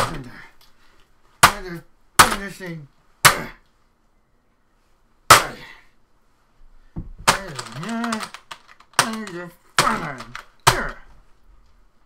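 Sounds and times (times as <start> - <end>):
hammer striking keyboard: 7.0 - 11.0
keyboard clicks: 7.3 - 10.9
man growling angrily: 7.4 - 8.4, 9.0 - 11.1.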